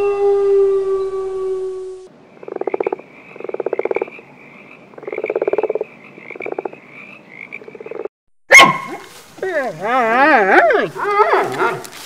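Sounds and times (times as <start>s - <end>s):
frog croaking: 2.3s - 8.1s.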